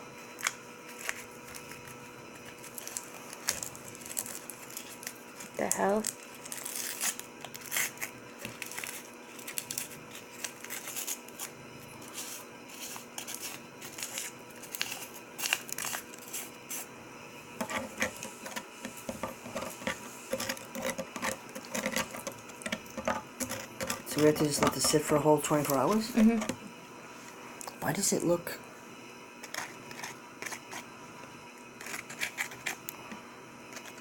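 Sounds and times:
utensil stirring and tapping container: 0:17.6 - 0:26.6.

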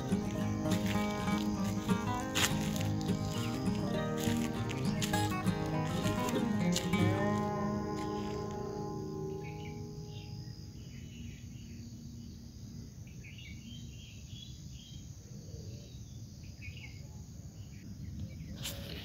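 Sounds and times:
handling noise: 0:00.0 - 0:08.9
small birds chirping: 0:00.0 - 0:17.0.

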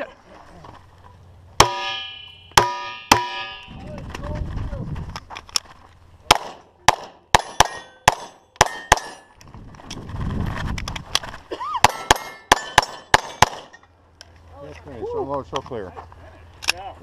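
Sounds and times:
bullets ringing on steel plates: 0:01.6 - 0:03.8, 0:07.0 - 0:09.3, 0:11.9 - 0:13.8
pistol shots: 0:06.3 - 0:09.3, 0:11.8 - 0:13.8.

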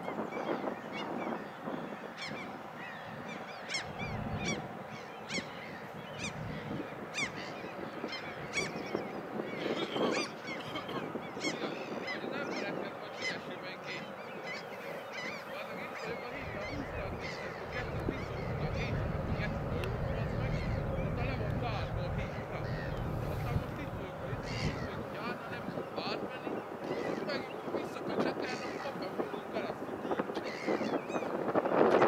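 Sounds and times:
geese honking: 0:14.5 - 0:25.7
low rumble: 0:16.4 - 0:25.2.

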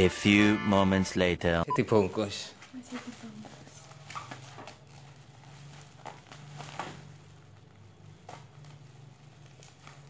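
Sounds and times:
plastic bag crinkling: 0:02.7 - 0:10.0.

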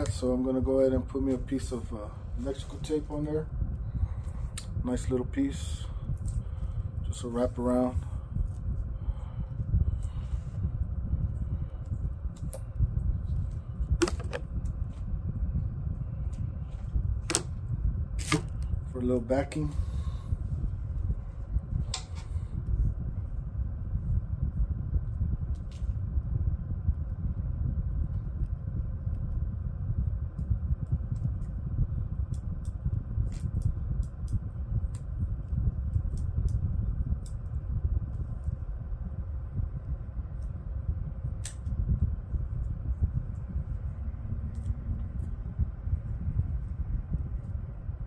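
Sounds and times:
electrical tape clicks and crackles: 0:00.0 - 0:15.2, 0:16.2 - 0:22.8, 0:26.8 - 0:38.7, 0:40.2 - 0:48.0
steady low rumble: 0:00.0 - 0:48.0
tape crackling: 0:13.3 - 0:15.0, 0:17.2 - 0:18.8
scissors snipping tape: 0:18.2 - 0:18.6.

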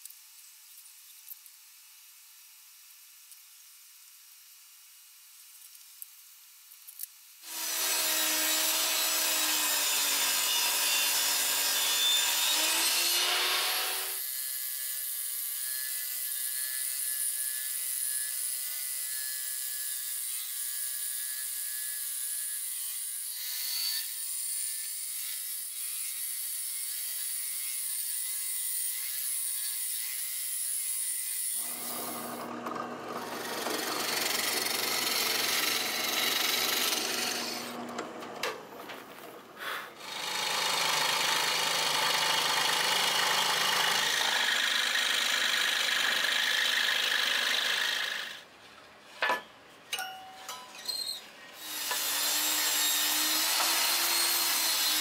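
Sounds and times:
drill boring into plywood: 0:07.4 - 0:14.3, 0:31.5 - 0:38.4, 0:40.0 - 0:48.4, 0:51.6 - 0:55.0
table saw cutting plywood: 0:07.4 - 0:14.4, 0:22.7 - 0:48.5, 0:51.6 - 0:55.0
band saw whining: 0:07.5 - 0:14.2, 0:31.6 - 0:39.4.

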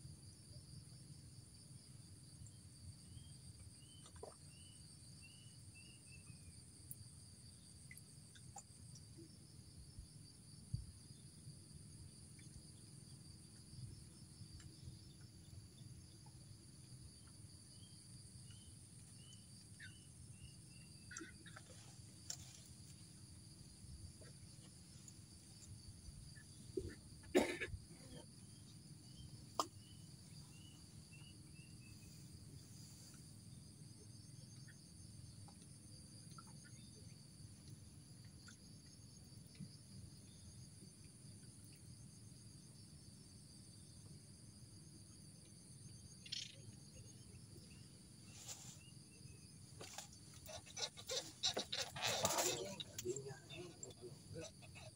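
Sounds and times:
insects chirping: 0:00.0 - 0:54.9.

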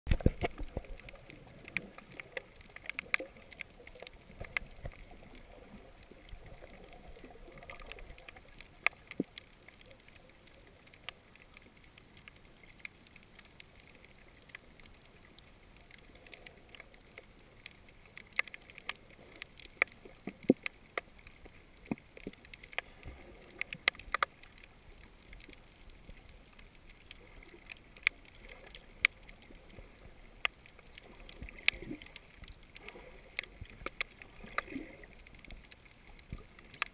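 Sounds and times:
low steady underwater wash: 0:00.1 - 0:36.9
sharp clicks and pops: 0:00.1 - 0:36.9.

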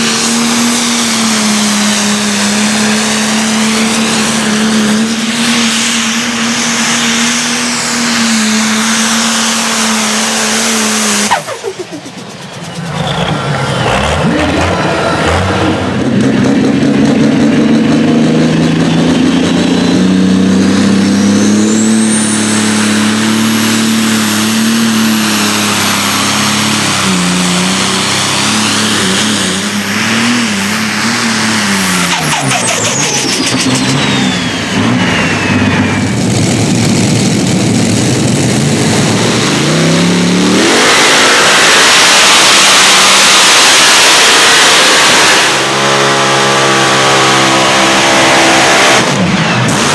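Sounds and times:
second tractor engine roaring: 0:00.0 - 0:49.9
tractor diesel engine full throttle: 0:00.0 - 0:49.9
high turbo whistle: 0:02.6 - 0:10.4, 0:11.0 - 0:13.2, 0:21.0 - 0:24.4, 0:29.6 - 0:36.4.

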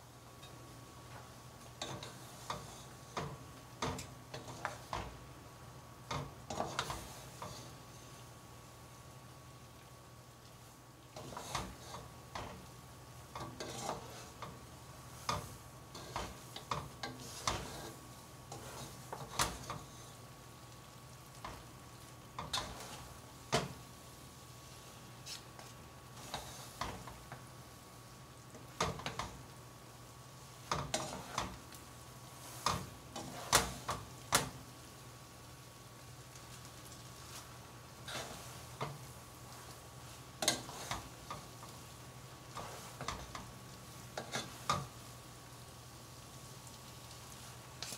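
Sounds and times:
wooden spatulas scraping pot: 0:11.2 - 0:12.1, 0:13.4 - 0:14.6, 0:30.7 - 0:31.6, 0:38.0 - 0:39.0, 0:40.4 - 0:41.6.

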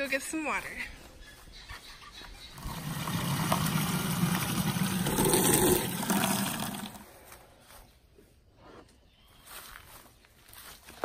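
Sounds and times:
water pouring into plastic can: 0:02.6 - 0:07.1.

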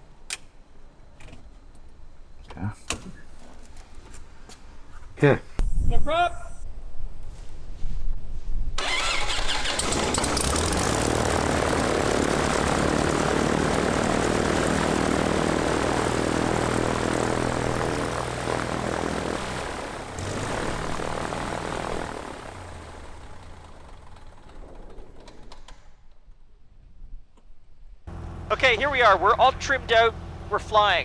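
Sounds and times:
propeller plane engine running: 0:08.8 - 0:25.7, 0:28.1 - 0:31.0.

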